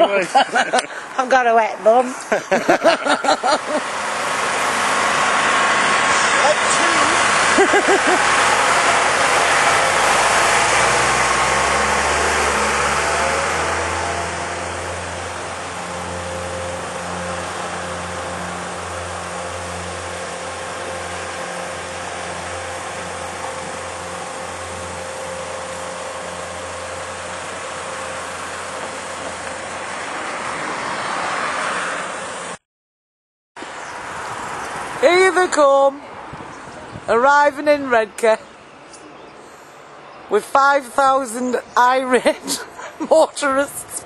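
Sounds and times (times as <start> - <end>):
vehicle engine pulling away: 2.3 - 32.6, 33.6 - 35.1.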